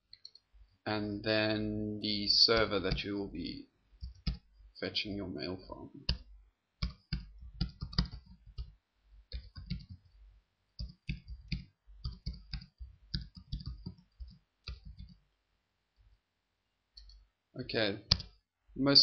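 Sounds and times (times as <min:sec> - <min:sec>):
keyboard keys clicking: 0:06.8 - 0:08.7, 0:09.3 - 0:10.1, 0:10.8 - 0:15.2.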